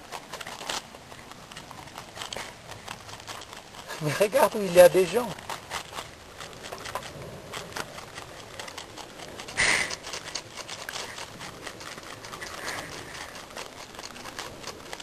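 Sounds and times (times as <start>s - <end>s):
marmot chewing cabbage: 0.0s - 15.0s.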